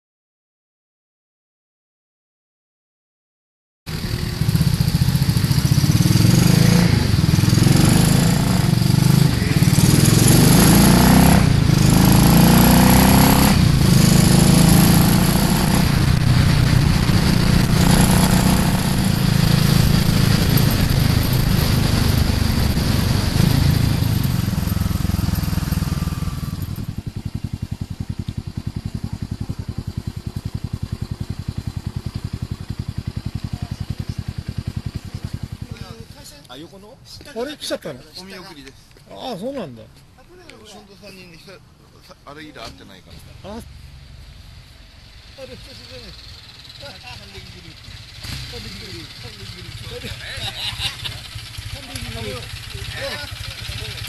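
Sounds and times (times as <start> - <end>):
motorcycle engine under load: 3.9 - 36.6, 42.6 - 54.0
motorcycle engine idling: 3.9 - 38.1, 40.0 - 54.0
wind rushing over microphone: 13.3 - 25.2.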